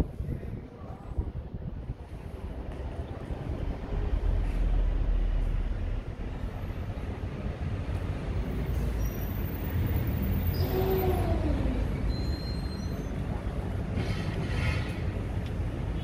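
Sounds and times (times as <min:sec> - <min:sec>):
city street traffic rumbling: 0:00.0 - 0:16.0
passing vehicle hum: 0:02.1 - 0:12.3
faint high squeaks: 0:10.4 - 0:13.3.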